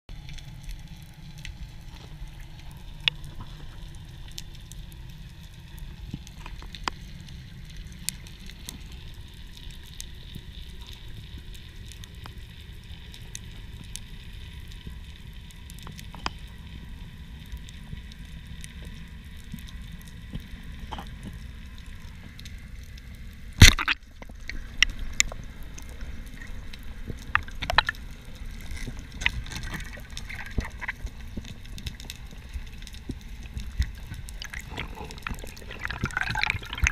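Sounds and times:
low underwater rumble: 0.1s - 36.9s
small clicks and knocks: 18.7s - 22.6s
speargun firing crack: 23.6s - 24.0s.

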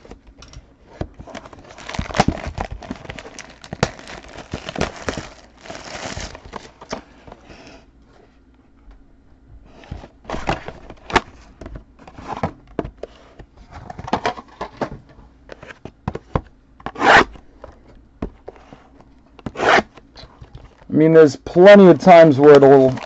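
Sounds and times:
packaging rubbing and tearing: 1.2s - 6.9s.

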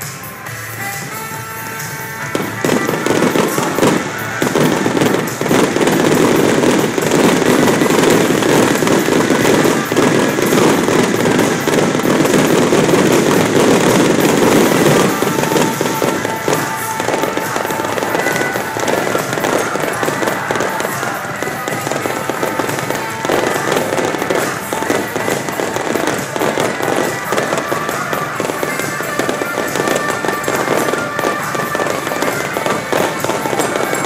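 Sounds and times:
fireworks bursting: 0.0s - 34.0s
taiko and shamisen music: 0.0s - 34.0s.

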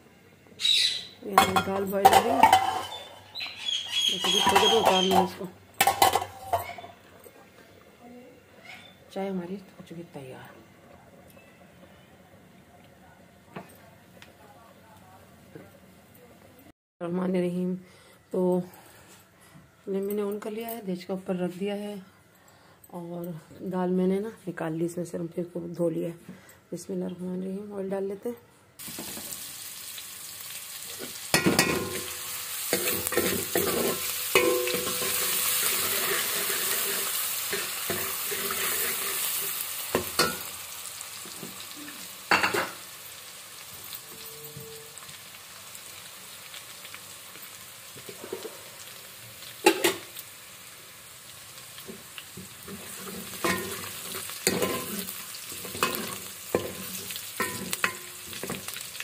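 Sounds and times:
ladle scraping and knocking pot: 1.4s - 3.1s, 4.2s - 6.9s
paste sizzling in hot oil: 28.8s - 44.2s, 45.0s - 59.0s.

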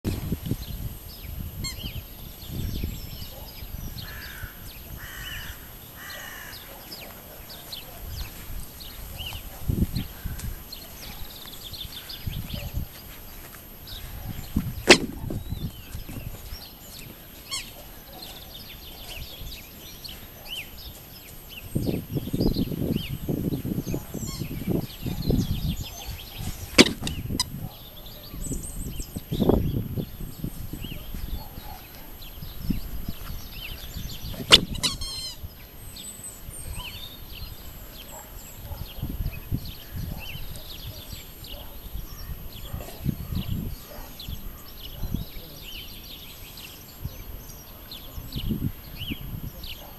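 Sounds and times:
small birds chirping: 0.3s - 49.9s
low rustling thuds: 13.9s - 17.2s
sharp click: 14.9s - 15.4s, 26.8s - 27.5s, 34.4s - 35.0s
rubber chicken toy squawk: 34.5s - 35.4s.

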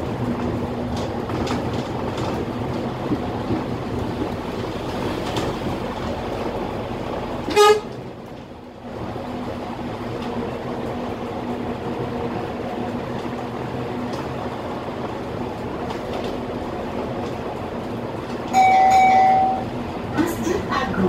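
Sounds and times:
bus engine and road noise: 0.0s - 21.0s
loud steady tone: 18.5s - 19.7s.

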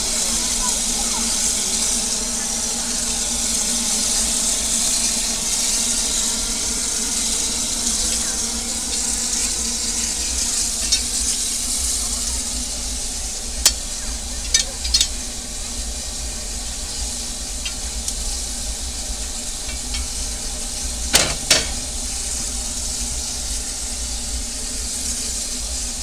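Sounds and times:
steam hissing: 0.0s - 26.0s
poker raking firebox: 3.6s - 22.7s.

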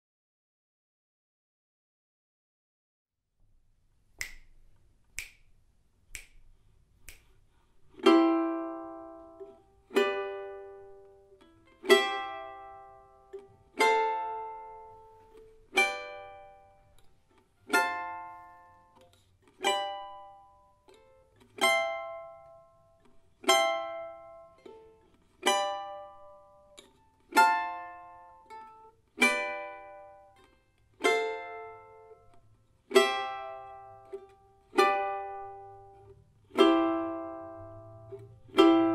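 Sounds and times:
charango chords plucked: 7.9s - 38.9s.

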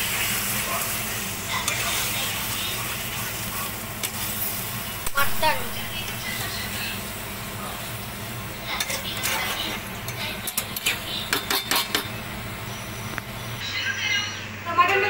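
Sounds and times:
food sizzling in a pan: 0.0s - 14.9s
spatula scraping a pan: 1.6s - 4.6s, 8.7s - 12.1s.

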